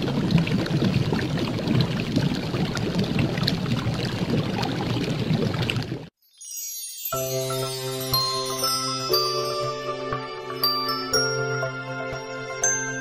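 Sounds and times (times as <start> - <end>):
watery bubbling with crackles: 0.0 - 6.2.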